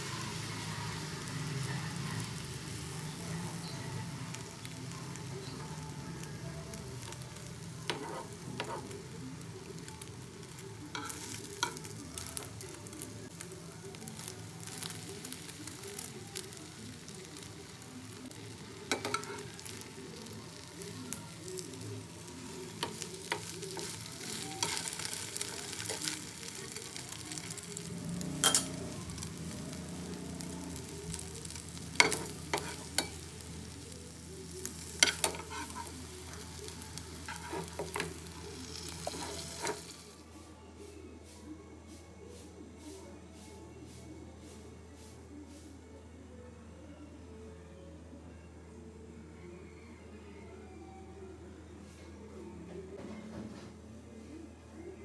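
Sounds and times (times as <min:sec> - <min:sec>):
omelette sizzling in frying pan: 0:00.0 - 0:40.2.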